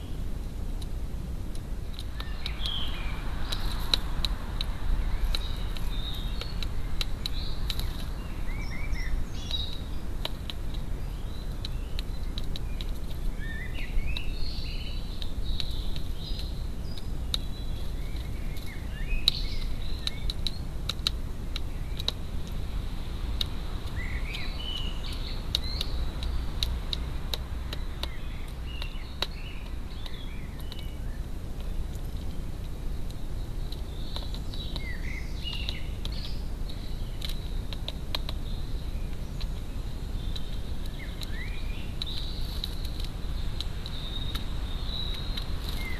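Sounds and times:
low outdoor rumble: 0:00.0 - 0:45.9
birds chirping and singing: 0:02.0 - 0:04.0, 0:04.9 - 0:20.7, 0:23.9 - 0:27.0, 0:27.7 - 0:32.6, 0:33.4 - 0:45.9
sharp clicks and taps: 0:25.5 - 0:30.9, 0:37.2 - 0:38.4.

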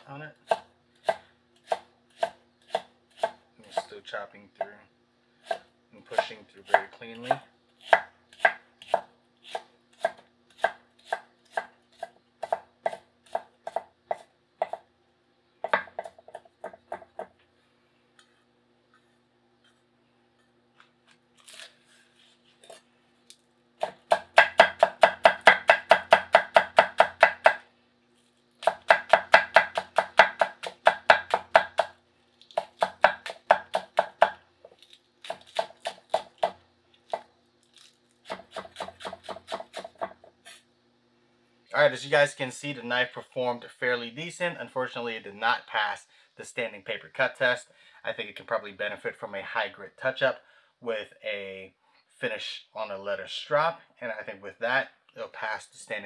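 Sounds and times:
knife chopping on wooden board: 0:00.4 - 0:03.9, 0:05.4 - 0:14.8, 0:15.6 - 0:17.3, 0:23.8 - 0:27.6, 0:28.6 - 0:32.0, 0:32.6 - 0:34.4, 0:35.2 - 0:37.3, 0:38.2 - 0:40.4.

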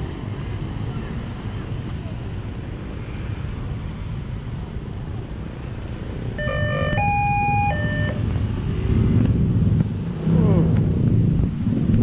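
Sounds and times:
engines rumbling: 0:00.0 - 0:12.0.

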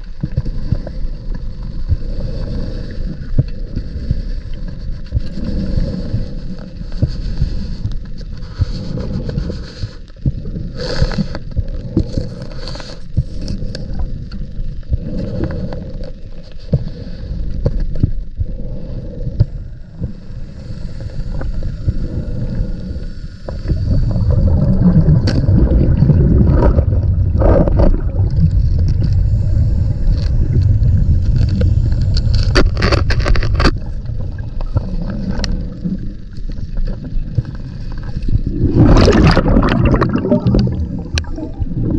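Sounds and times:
exhaled bubbles rumbling underwater: 0:00.0 - 0:41.9
water moving past: 0:20.0 - 0:41.9
knocks and scrapes: 0:31.4 - 0:33.9.

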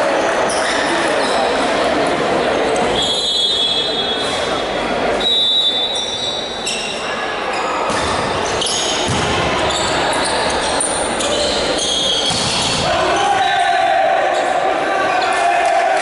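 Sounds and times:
sneakers squeaking on gym floor: 0:02.8 - 0:13.2
volleyball being hit: 0:09.0 - 0:09.6, 0:12.2 - 0:12.9.

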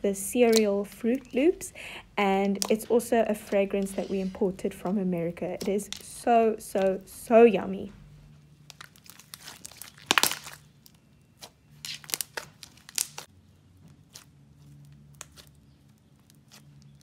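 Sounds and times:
sticky clicks and crackles: 0:02.4 - 0:03.0, 0:05.5 - 0:06.2, 0:08.7 - 0:11.0
slime squeezed by hand: 0:08.7 - 0:13.3.

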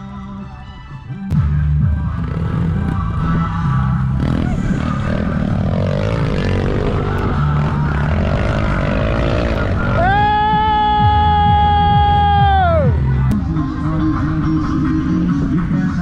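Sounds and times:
motorcycle engine revving: 0:01.3 - 0:11.0.

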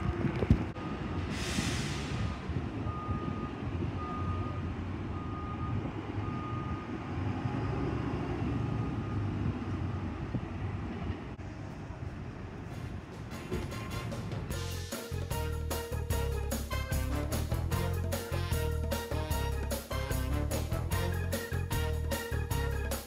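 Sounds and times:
bus diesel engines: 0:00.0 - 0:23.0
reversing alarm beeping: 0:00.8 - 0:01.8, 0:02.8 - 0:07.0
air brake hiss: 0:01.2 - 0:02.6.

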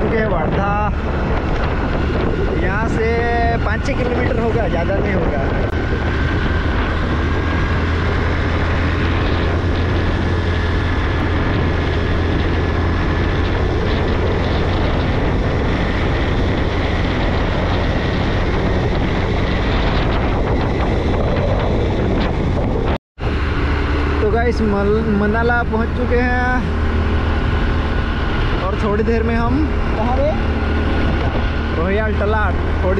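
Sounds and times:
vehicle engine hum: 0:00.0 - 0:32.9
wind and road noise: 0:00.0 - 0:32.9.

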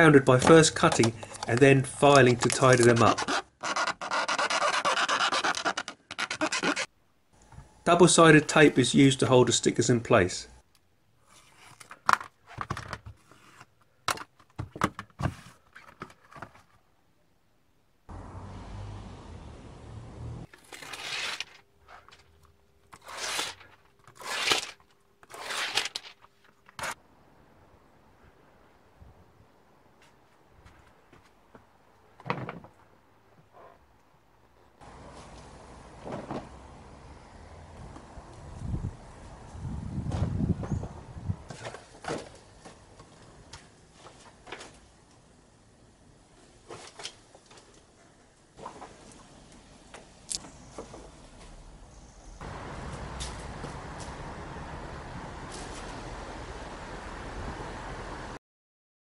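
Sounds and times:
tape being pulled off: 0:01.4 - 0:06.9, 0:20.5 - 0:22.3, 0:22.9 - 0:27.0.

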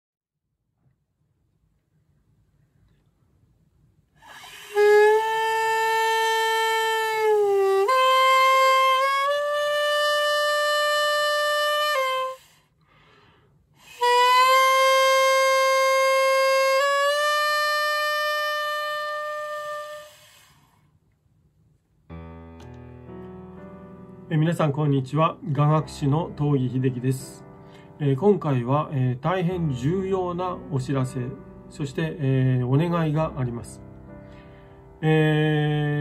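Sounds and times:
double-reed pipe playing held notes: 0:04.2 - 0:12.5, 0:13.8 - 0:20.4.

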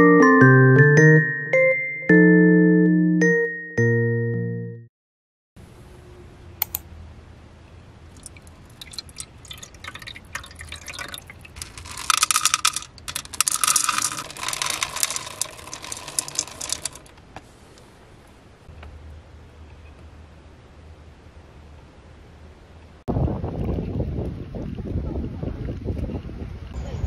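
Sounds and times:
water trickling into plastic bowl: 0:08.1 - 0:17.1
dry kibble clattering into bowl: 0:09.8 - 0:17.1.

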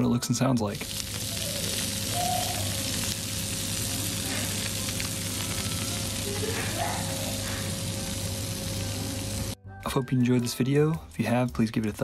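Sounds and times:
pizza sizzling in hot pan: 0:00.7 - 0:09.6.

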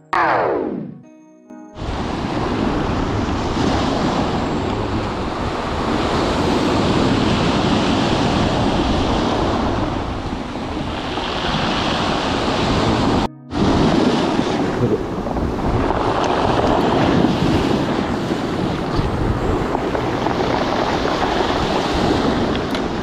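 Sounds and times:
wind noise on microphone: 0:01.8 - 0:23.0
surf breaking on pebble beach: 0:15.3 - 0:23.0.

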